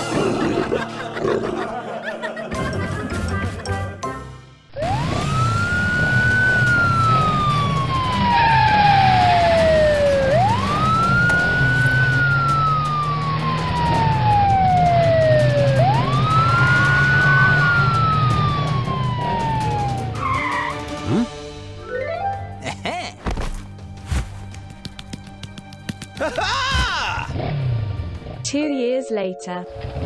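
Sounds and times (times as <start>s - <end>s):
background music: 0.0s - 30.0s
police siren wailing: 4.8s - 20.9s.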